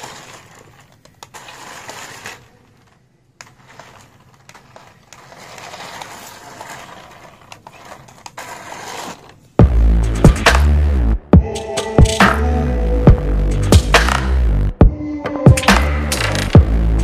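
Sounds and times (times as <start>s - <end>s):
toy car motor whirring: 0.0s - 9.4s.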